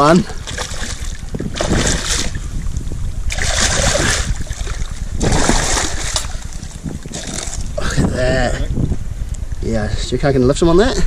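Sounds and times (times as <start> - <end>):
wind rumble on microphone: 0.0 - 11.0
fish thrashing and splashing: 0.4 - 2.5, 3.3 - 7.8.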